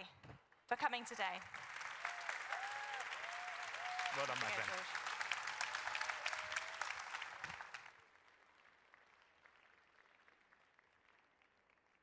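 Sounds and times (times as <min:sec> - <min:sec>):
audience applause: 0:01.2 - 0:12.0.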